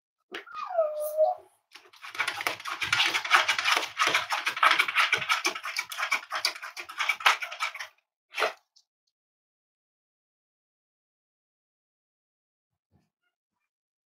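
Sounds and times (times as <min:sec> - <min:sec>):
dog claws scratching hard floor: 0:01.8 - 0:08.5.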